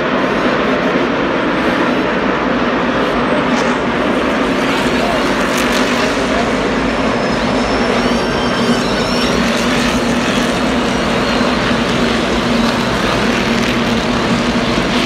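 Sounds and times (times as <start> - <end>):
race car engines droning: 0.0 - 15.0.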